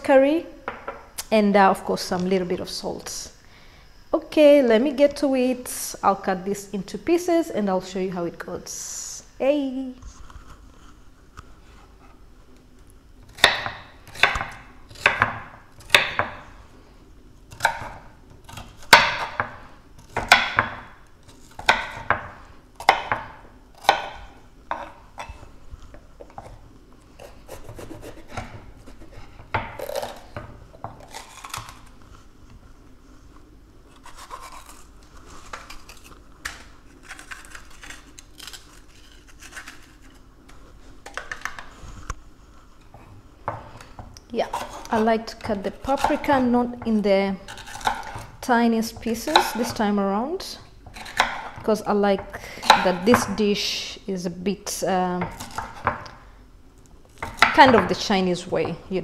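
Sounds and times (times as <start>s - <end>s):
knife chopping on wooden board: 13.3s - 16.4s, 17.5s - 20.9s, 21.6s - 25.4s, 45.9s - 48.4s, 49.0s - 49.8s, 50.9s - 53.4s, 55.2s - 56.1s, 57.2s - 58.0s
scraping on cutting board: 26.3s - 32.3s, 41.6s - 46.6s.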